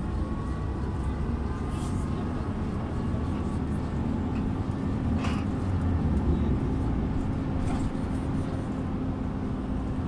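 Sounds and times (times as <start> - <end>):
bus engine drone: 0.0 - 10.0.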